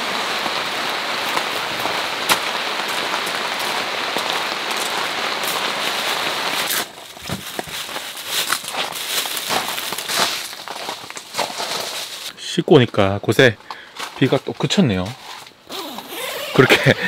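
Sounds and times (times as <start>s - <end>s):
heavy rain falling: 0.0s - 11.7s, 16.5s - 17.0s.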